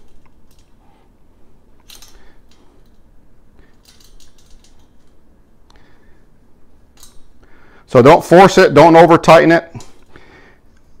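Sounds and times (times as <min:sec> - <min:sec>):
wrench clicking on metal: 0:03.7 - 0:05.1, 0:07.0 - 0:07.3.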